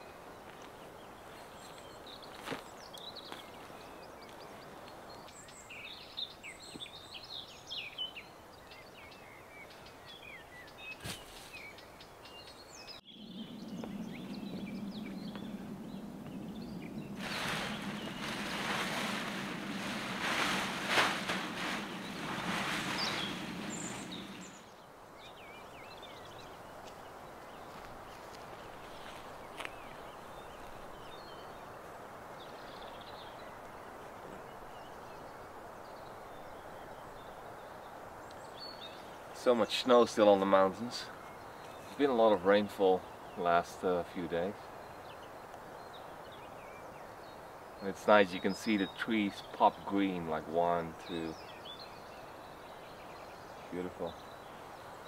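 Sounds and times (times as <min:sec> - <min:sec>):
outdoor background noise: 0:00.0 - 0:55.0
small birds chirping: 0:00.0 - 0:55.0
steady low hum: 0:13.1 - 0:24.7
loud rushing noise: 0:13.3 - 0:24.6.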